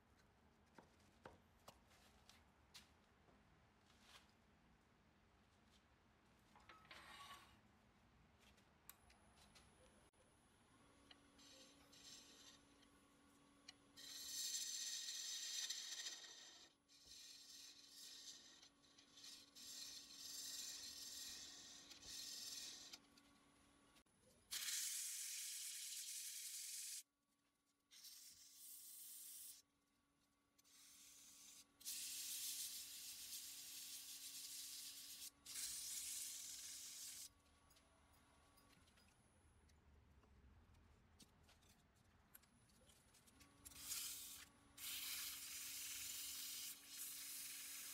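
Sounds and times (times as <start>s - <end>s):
sandpaper rubbing on wood: 43.8s - 47.9s.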